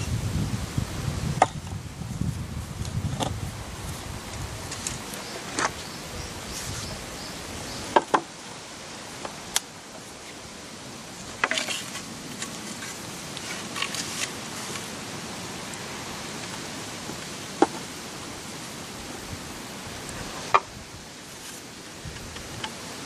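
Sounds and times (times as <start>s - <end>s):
bamboo pieces clacking: 11.3s - 14.9s.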